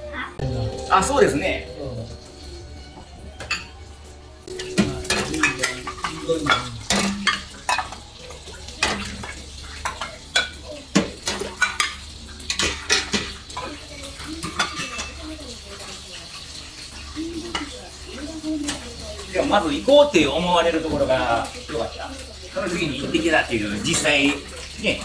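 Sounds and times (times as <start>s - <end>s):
metal ladle clinking on pans: 4.5s - 8.1s, 8.8s - 13.6s.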